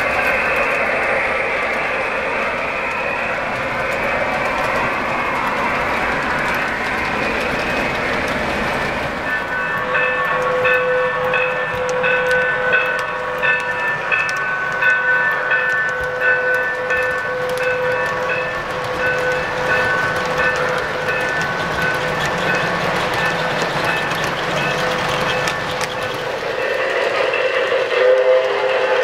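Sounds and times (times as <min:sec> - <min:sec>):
model train wheels rattling: 0:15.6 - 0:28.6.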